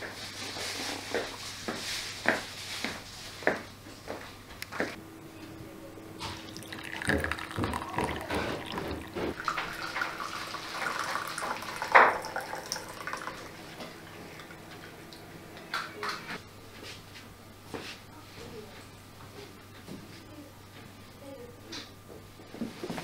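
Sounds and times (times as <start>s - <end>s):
hot liquid pouring into cups: 6.2s - 14.6s.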